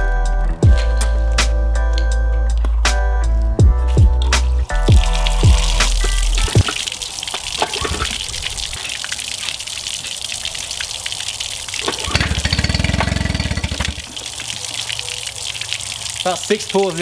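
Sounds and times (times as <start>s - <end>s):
hose water gushing and splashing: 4.3s - 17.0s
outboard engine pulsing: 11.8s - 14.2s
recoil starter pulled: 11.9s - 14.1s.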